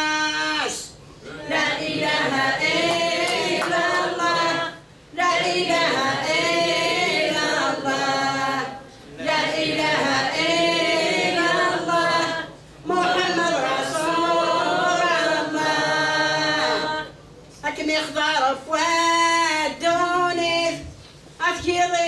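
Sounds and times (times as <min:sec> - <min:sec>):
woman chanting unaccompanied: 0:11.8 - 0:22.0.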